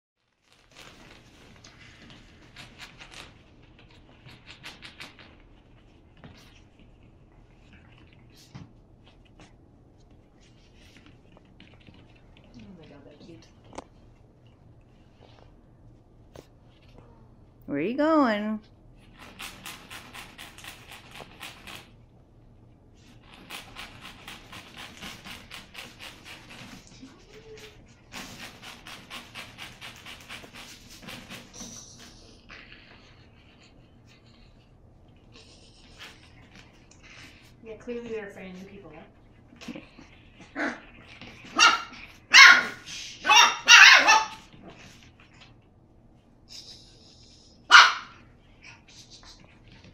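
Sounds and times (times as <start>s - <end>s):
low room hum: 0.2s - 49.9s
puppy panting: 23.2s - 38.8s, 46.5s - 49.9s.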